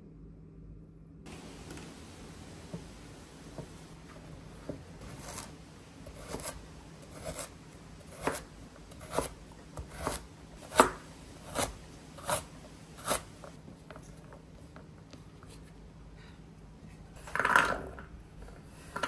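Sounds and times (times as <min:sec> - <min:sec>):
knife chopping carrots on board: 0:04.7 - 0:13.3.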